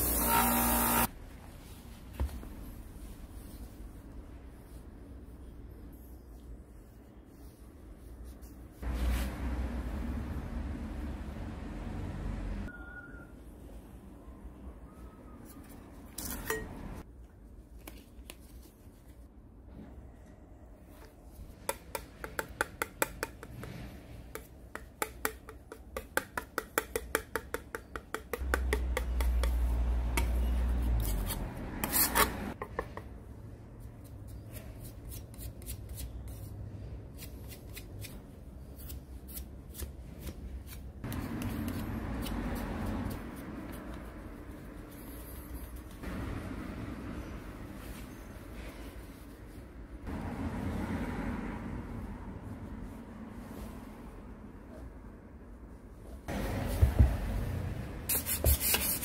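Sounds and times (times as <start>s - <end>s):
putty knife scraping on steel: 31.0s - 32.6s.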